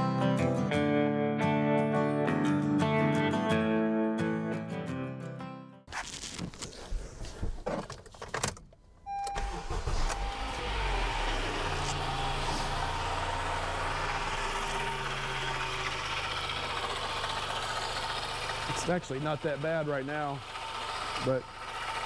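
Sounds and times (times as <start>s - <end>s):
car engine starting and idling: 6.3s - 22.0s.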